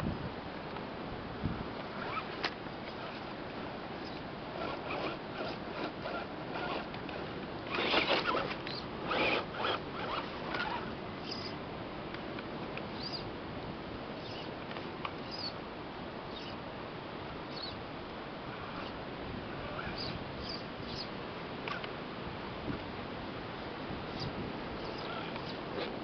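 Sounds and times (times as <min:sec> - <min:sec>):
steady background hiss: 0:00.0 - 0:26.0
electric motor whirring: 0:04.0 - 0:11.6.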